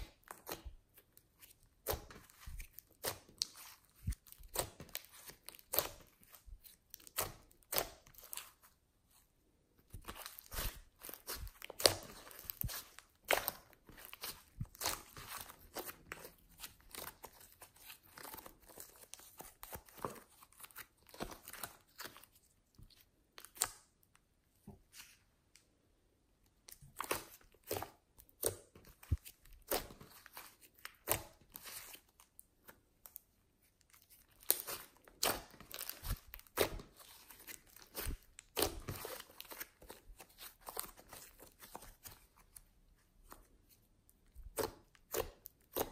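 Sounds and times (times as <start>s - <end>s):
hands squeezing sticky slime: 0.0s - 8.8s, 9.8s - 24.0s, 26.6s - 42.6s.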